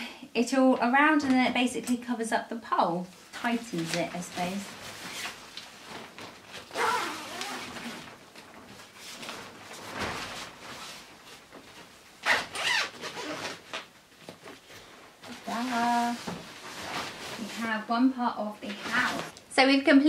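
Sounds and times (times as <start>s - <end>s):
nylon fabric rustling: 3.1s - 19.4s
zip being drawn: 6.7s - 8.0s, 12.2s - 13.6s.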